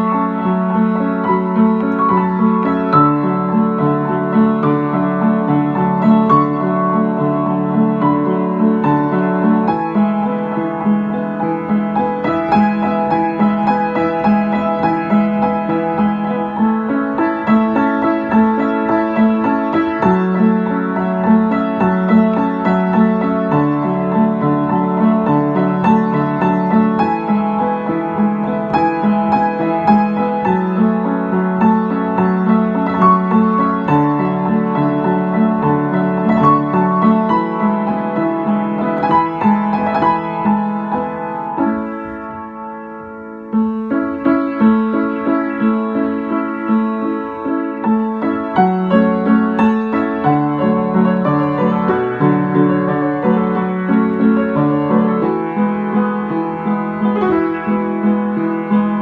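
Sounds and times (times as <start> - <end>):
upright piano playing: 0.0 - 59.0.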